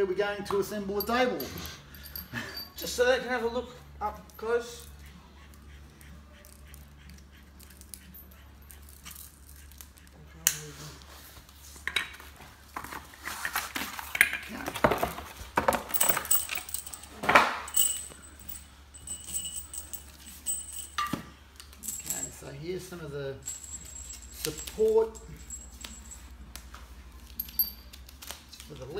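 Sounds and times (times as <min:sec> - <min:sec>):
metal bolts clinking: 0:00.6 - 0:03.2, 0:14.2 - 0:22.5, 0:27.3 - 0:28.0.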